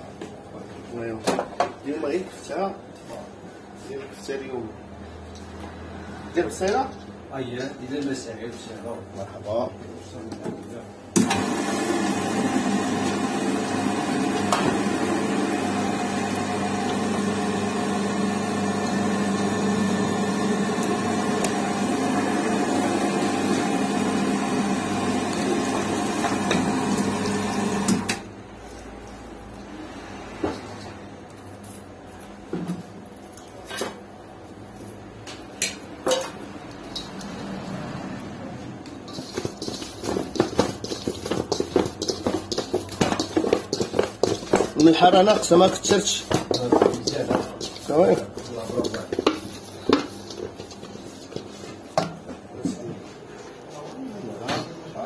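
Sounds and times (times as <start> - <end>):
electric meat grinder running: 11.2 - 28.2.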